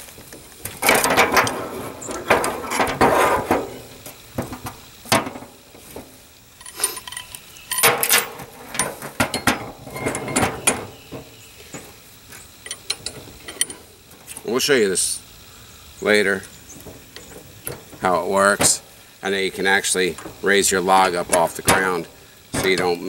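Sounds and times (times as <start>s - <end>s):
steel tool parts clanking: 0.7s - 5.6s, 6.6s - 11.9s, 12.6s - 14.4s, 19.9s - 23.0s.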